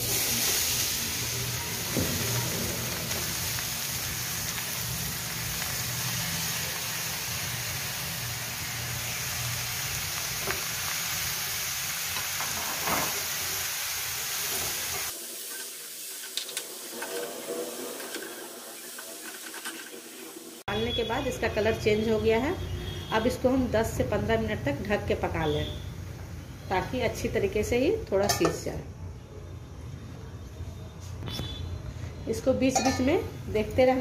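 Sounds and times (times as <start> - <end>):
carrots sizzling in a pan: 0.0 - 21.8.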